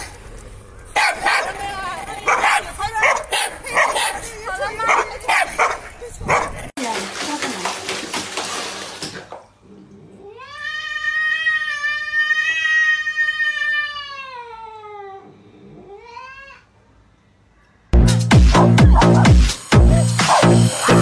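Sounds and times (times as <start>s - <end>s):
water splashing in basin: 6.7s - 9.6s
cat meowing: 10.2s - 16.7s
cat yowling: 10.2s - 16.7s.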